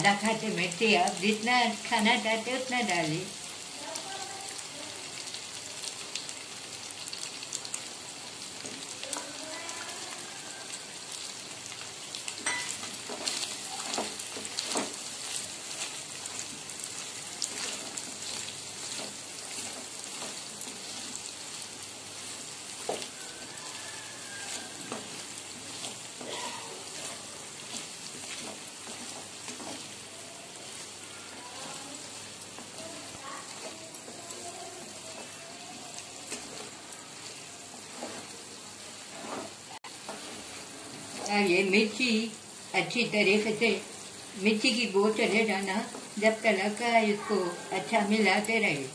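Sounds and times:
meat sizzling in a frying pan: 0.0s - 48.9s
wooden spatula scraping a pan: 8.6s - 42.1s.

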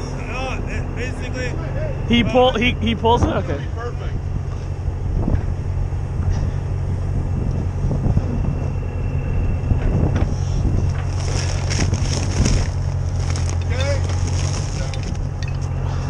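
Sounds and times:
diesel truck engine running: 0.0s - 16.0s
wind buffeting microphone: 4.2s - 13.3s.

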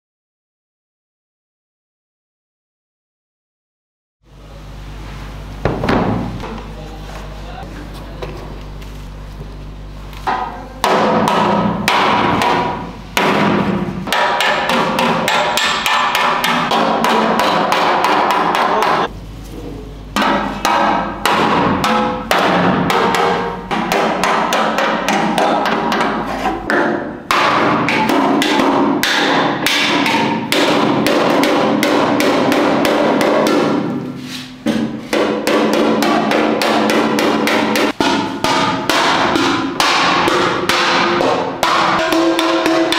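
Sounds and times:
hammer beating sheet metal: 10.3s - 19.1s, 20.2s - 42.9s.

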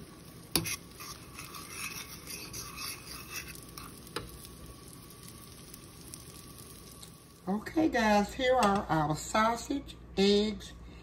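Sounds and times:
pan sizzling: 0.0s - 9.4s
utensil scraping scrambled eggs: 0.3s - 4.3s.

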